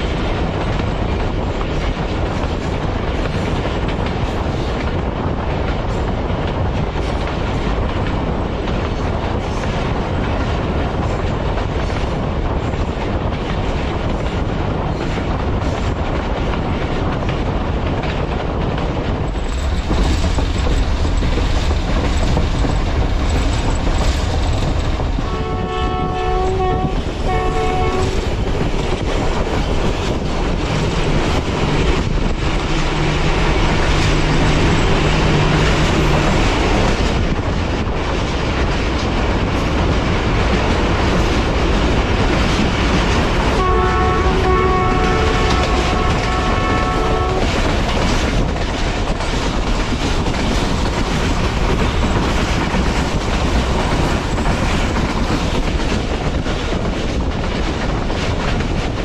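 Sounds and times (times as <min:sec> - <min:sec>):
train wheels and track noise: 0:00.0 - 0:59.0
locomotive multi-tone horn: 0:25.2 - 0:28.3, 0:43.6 - 0:47.6.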